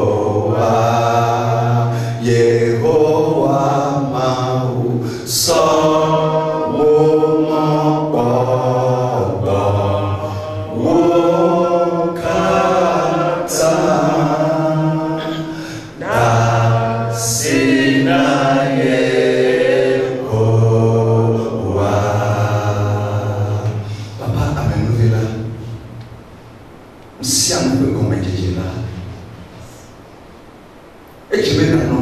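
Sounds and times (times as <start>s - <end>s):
man singing chant-like song: 0.0s - 25.6s
woman singing along: 12.1s - 18.4s.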